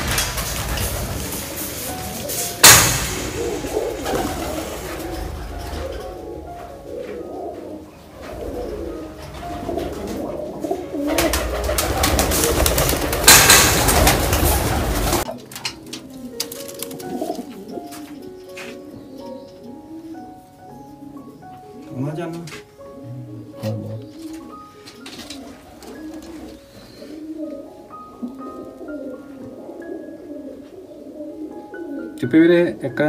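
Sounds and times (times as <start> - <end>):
sudden loud clatter: 0.0 - 5.7, 11.9 - 15.3
pigeons cooing: 0.0 - 33.0.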